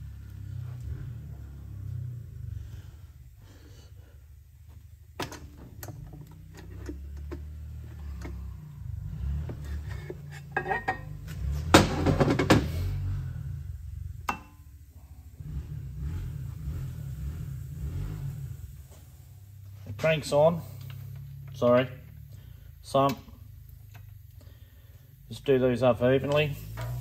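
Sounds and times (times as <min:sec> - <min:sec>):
low steady hum: 0:00.0 - 0:27.0
metal engine parts clinking: 0:09.8 - 0:11.5.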